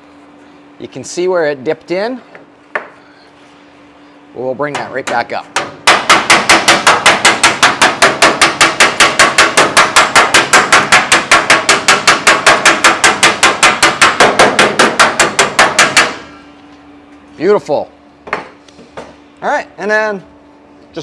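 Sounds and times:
hammer striking sheet steel: 4.7s - 16.4s.

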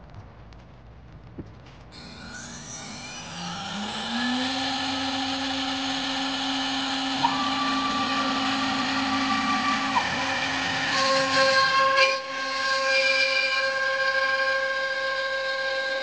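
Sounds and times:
higher gantry whine: 1.8s - 12.6s
router spindle whine: 2.0s - 16.0s.

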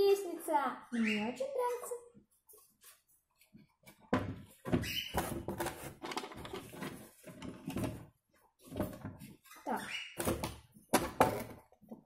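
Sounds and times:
hard plastic knocking and rubbing: 3.8s - 9.4s.

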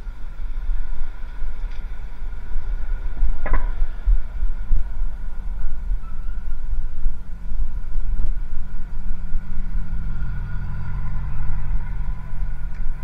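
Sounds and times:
bicycle rolling on pavement: 0.0s - 13.0s
faint high whine: 0.0s - 13.0s.

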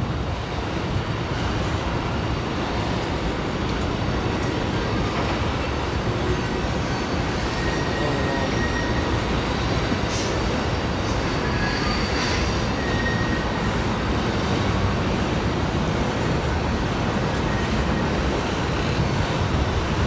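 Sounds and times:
train wheels rumbling on rail: 0.0s - 20.0s
faint high wheel squeal: 6.2s - 14.2s, 17.2s - 18.4s.

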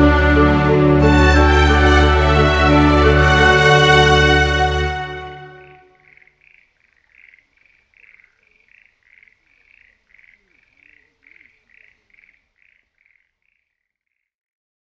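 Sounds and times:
tree frogs calling: 5.5s - 14.3s.

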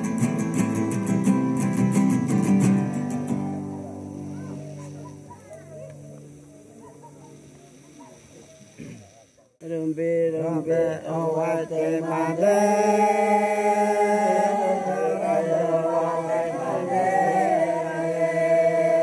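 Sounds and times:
group chanting held notes: 10.2s - 19.0s.

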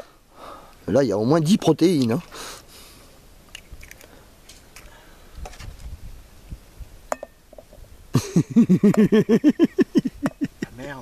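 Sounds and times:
man laughing: 8.2s - 10.9s.

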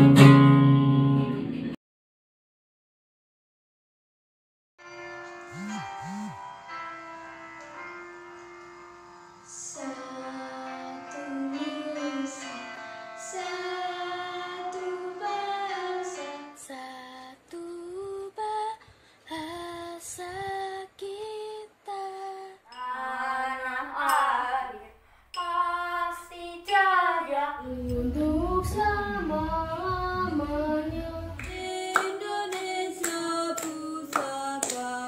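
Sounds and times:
children singing: 9.5s - 17.0s, 22.7s - 35.0s
low rumble: 27.6s - 31.5s.

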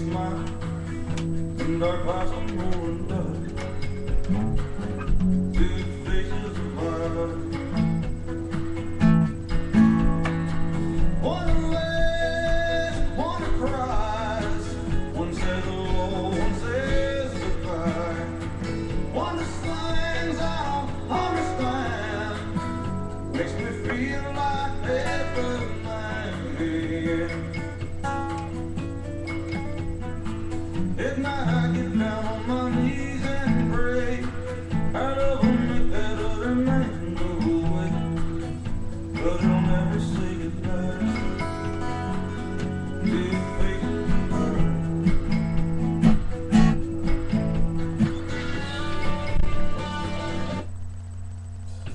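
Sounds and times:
person singing: 0.0s - 4.2s, 5.1s - 8.2s, 10.9s - 28.0s, 30.9s - 45.4s
acoustic guitar strumming: 0.0s - 51.9s.

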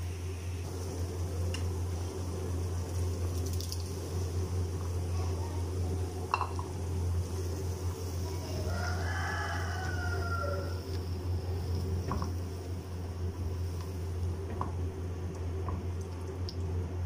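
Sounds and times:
low hum and hiss: 0.0s - 17.0s
rooster crowing: 8.4s - 11.0s.

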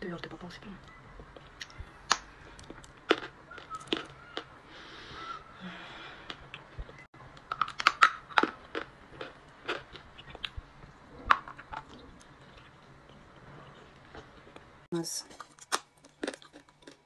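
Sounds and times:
crunchy biting and chewing: 1.4s - 4.5s, 6.2s - 14.7s, 15.3s - 17.0s.

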